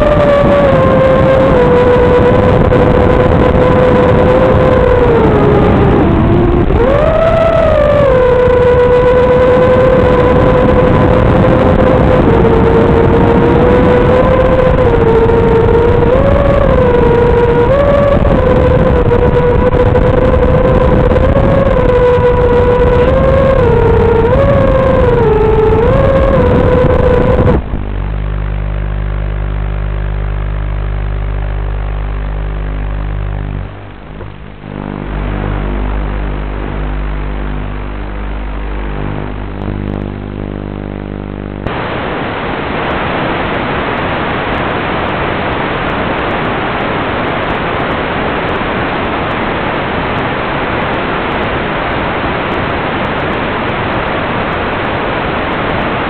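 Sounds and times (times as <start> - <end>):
drone motor whine: 0.0 - 46.6
steady buzzing hum: 0.0 - 56.0
radio static hiss: 26.3 - 56.0.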